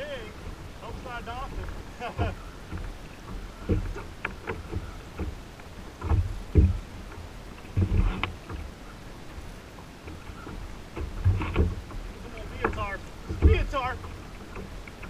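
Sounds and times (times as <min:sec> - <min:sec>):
faint wind: 0:00.0 - 0:15.0
water sloshing against kayak hull: 0:00.0 - 0:15.0.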